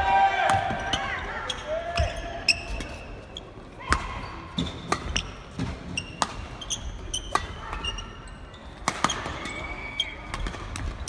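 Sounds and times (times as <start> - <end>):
shoes squeaking on court: 0.9 - 11.0
rackets hitting shuttlecock: 3.9 - 7.9, 8.8 - 9.7.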